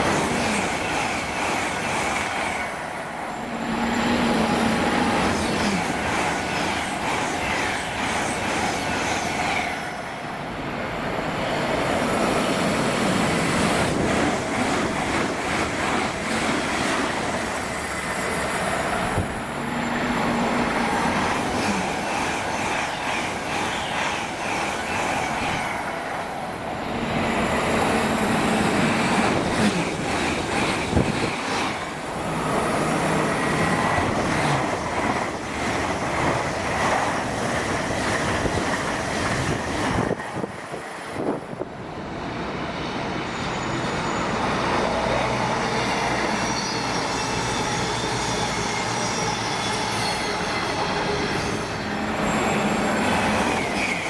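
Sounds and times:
trains passing at speed: 0.0 - 54.0.

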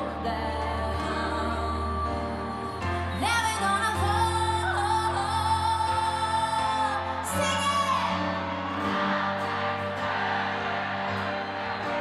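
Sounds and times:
woman singing: 0.0 - 8.5
live pop band: 0.0 - 12.0.

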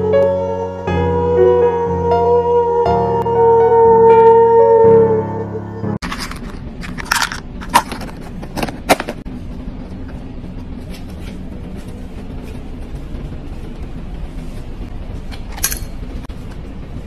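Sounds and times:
music: 0.0 - 6.0
low background hum: 4.6 - 17.0.

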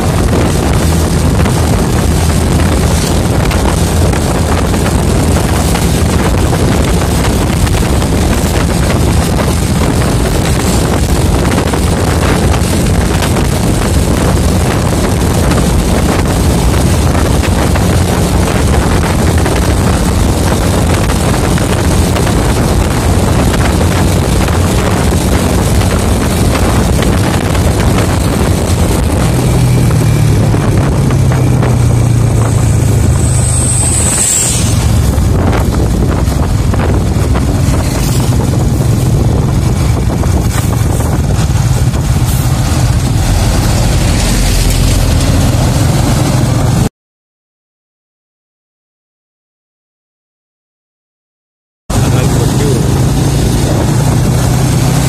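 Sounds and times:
vehicle engine hum: 0.0 - 46.9, 51.9 - 55.0
wind rushing over microphone: 0.0 - 46.9, 51.9 - 55.0
brief high squeal: 33.2 - 34.9.

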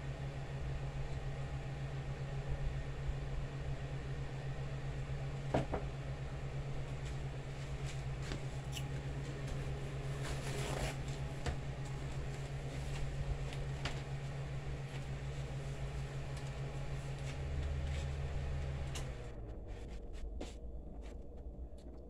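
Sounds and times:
low room tone hum: 0.0 - 22.0
short rustle: 9.7 - 11.3.

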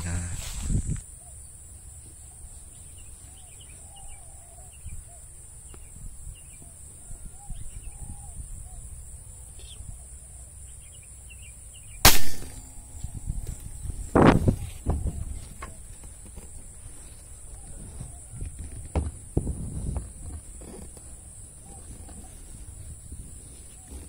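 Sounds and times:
faint bird calls: 0.0 - 19.0, 20.2 - 24.0
air rifle shot: 12.0 - 13.2.

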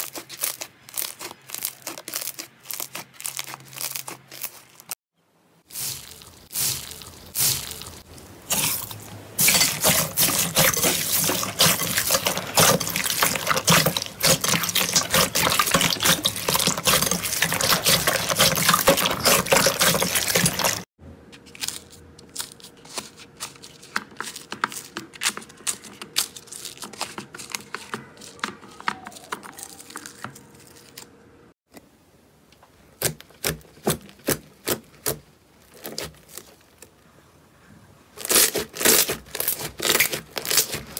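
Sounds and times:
crunchy slime crackles: 0.0 - 5.0, 5.6 - 31.1, 33.0 - 37.1, 38.2 - 40.9
slime squishing and crackling: 0.0 - 5.0, 5.7 - 20.9, 33.0 - 36.9, 38.2 - 40.9.

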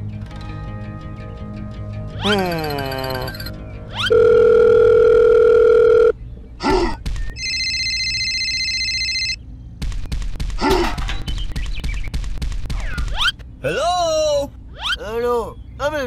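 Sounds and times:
electronic dial tone: 4.1 - 6.1, 7.4 - 9.4.

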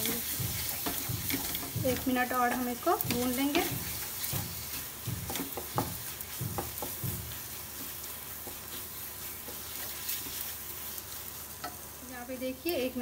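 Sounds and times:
spatula stirring and scraping: 0.0 - 12.1
food sizzling in oil: 0.0 - 13.0
spatula knocking against pot: 0.2 - 8.7.

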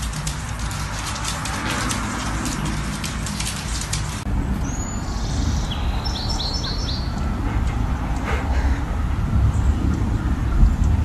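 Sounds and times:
birds chirping: 0.1 - 8.9.

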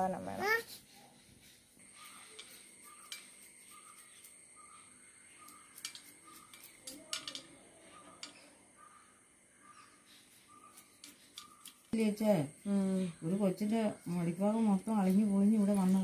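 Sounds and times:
knife cutting herbs: 0.6 - 8.4
bird chirping: 1.8 - 12.0.

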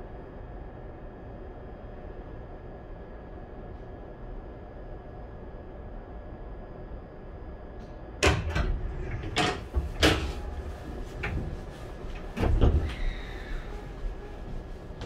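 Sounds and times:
knocks and clunks in train car: 8.2 - 15.0.

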